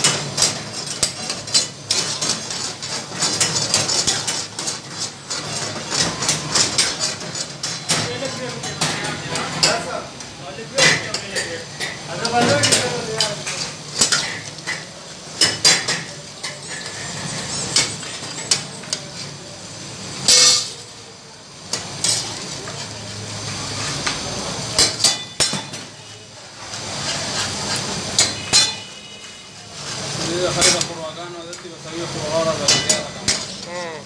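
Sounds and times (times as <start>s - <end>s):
metal ladle scraping a wok: 0.0s - 7.9s, 12.6s - 19.4s, 20.0s - 20.9s, 21.7s - 31.0s
meat sizzling and bubbling: 0.0s - 34.0s.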